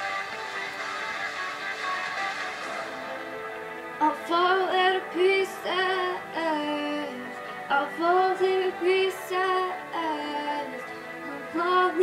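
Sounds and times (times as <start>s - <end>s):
pop backing music: 0.0s - 12.0s
girl singing wordless notes: 3.9s - 12.0s.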